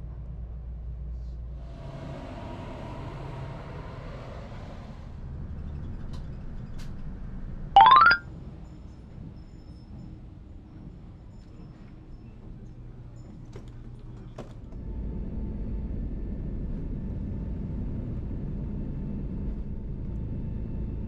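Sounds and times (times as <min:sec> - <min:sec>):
bus rumble: 0:01.7 - 0:07.2
rising electronic chime: 0:07.8 - 0:08.2
train carriage running noise: 0:08.6 - 0:17.2.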